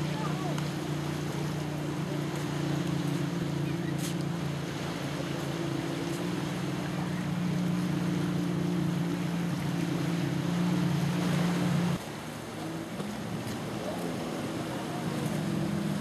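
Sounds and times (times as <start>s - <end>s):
low engine drone: 0.0s - 16.0s
water noise: 0.0s - 16.0s
wind: 0.0s - 16.0s.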